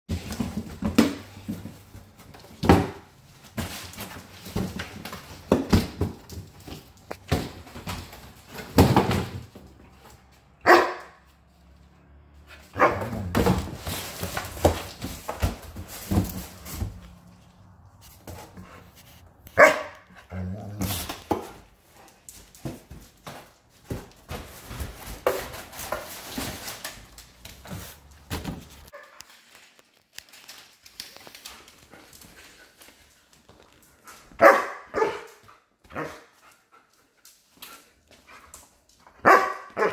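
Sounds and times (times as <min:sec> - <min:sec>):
dog barking: 0:10.6 - 0:11.3, 0:12.7 - 0:13.3, 0:19.6 - 0:20.2, 0:34.4 - 0:36.2, 0:39.2 - 0:39.9
cardboard box rustling and knocking: 0:12.9 - 0:17.2.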